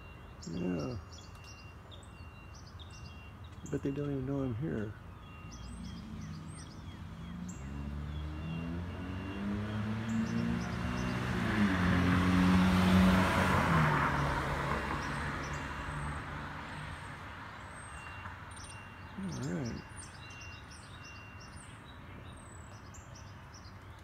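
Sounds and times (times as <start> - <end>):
car driving past: 5.4 - 17.4.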